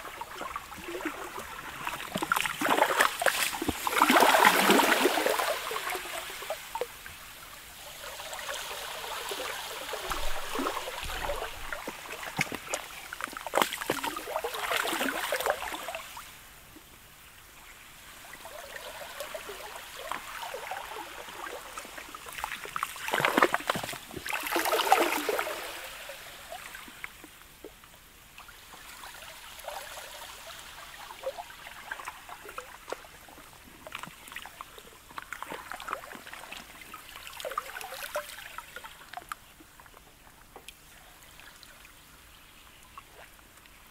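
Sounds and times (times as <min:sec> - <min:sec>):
water and ice surging on shore: 0:00.0 - 0:16.7, 0:17.6 - 0:27.3.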